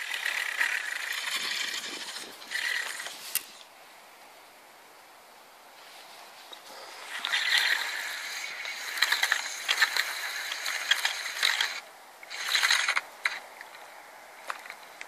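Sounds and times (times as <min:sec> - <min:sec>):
fishing reel whirring and clicking: 0:00.0 - 0:03.6, 0:06.9 - 0:13.4.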